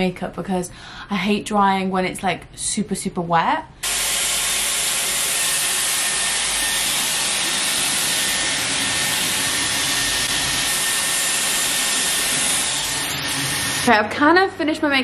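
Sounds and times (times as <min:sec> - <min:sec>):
hair styler blowing air: 0:03.8 - 0:13.9.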